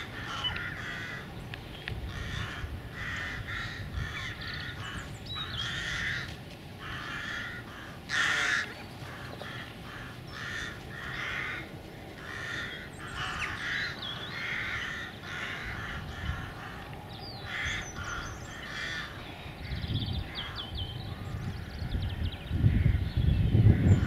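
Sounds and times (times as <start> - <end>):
harsh bird caws: 0.0 - 1.4, 2.0 - 24.0
small birds chirping: 0.0 - 2.5, 3.6 - 6.4, 12.2 - 24.0.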